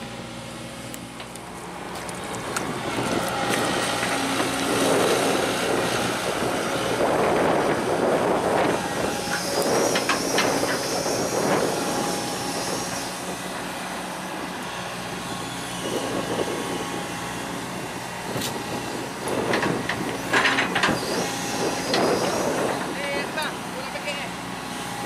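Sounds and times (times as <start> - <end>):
diesel engine drone: 0.0 - 25.0
high metallic squeal: 9.1 - 12.9.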